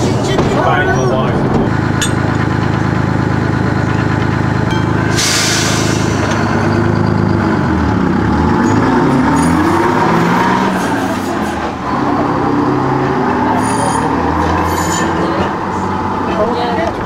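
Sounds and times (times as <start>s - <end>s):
railcar engine running: 0.0s - 17.0s
hiss of air: 5.2s - 6.2s.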